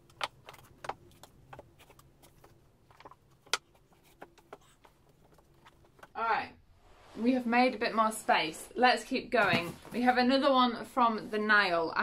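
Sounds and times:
books knocking and shuffling on shelf: 9.3 - 10.3.

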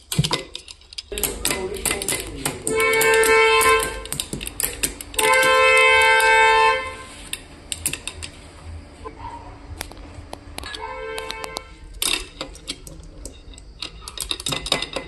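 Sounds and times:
long held pitched tones: 10.3 - 12.0.

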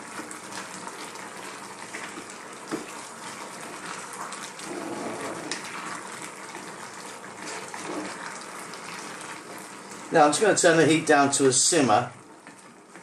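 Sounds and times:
steady sizzling hiss: 0.0 - 13.0
thick sauce squelching and sloshing: 0.4 - 10.2.

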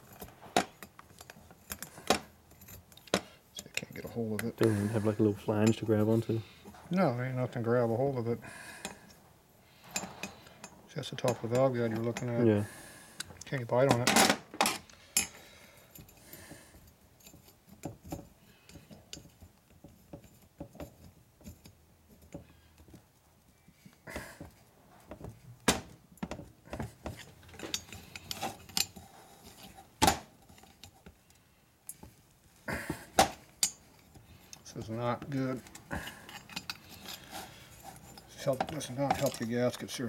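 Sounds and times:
metal tool clicking and scraping: 0.0 - 6.4, 14.6 - 23.0, 27.0 - 32.1, 33.2 - 40.0.

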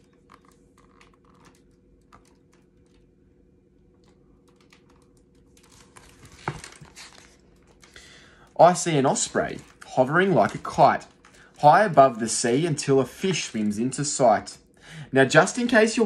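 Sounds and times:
book handling rustles: 0.0 - 3.1, 4.7 - 12.4
page turning: 0.0 - 3.1, 4.0 - 8.0, 8.7 - 12.4.

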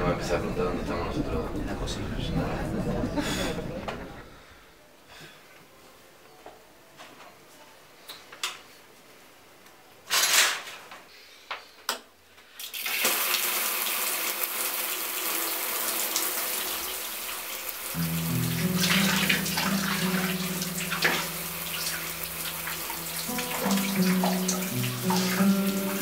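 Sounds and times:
shower spray running: 12.9 - 26.0.

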